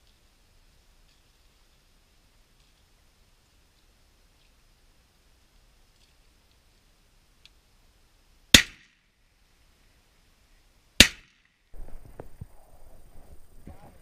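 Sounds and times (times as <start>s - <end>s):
shotgun shots: 8.5s - 8.9s, 11.0s - 11.5s.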